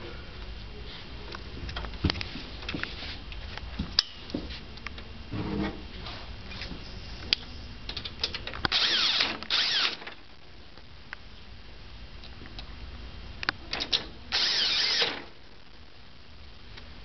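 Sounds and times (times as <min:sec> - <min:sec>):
cordless drill spinning: 0:08.7 - 0:10.1, 0:14.3 - 0:15.3.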